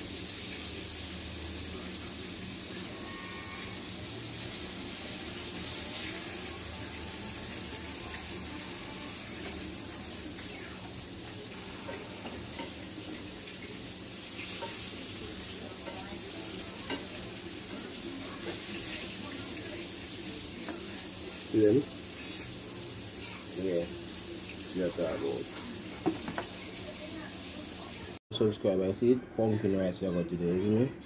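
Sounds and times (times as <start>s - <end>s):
food sizzling in a frying pan: 0.0s - 28.2s
fork scraping a pan: 11.5s - 13.6s, 14.4s - 15.0s, 22.0s - 22.6s
utensil tapping on a pan: 26.0s - 26.6s.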